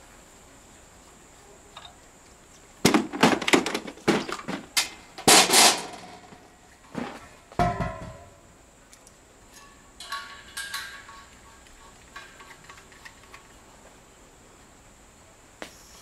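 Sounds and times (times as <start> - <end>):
heavy metallic clunk: 7.0 - 8.4
hoses and fittings clicking and rattling: 8.9 - 13.6.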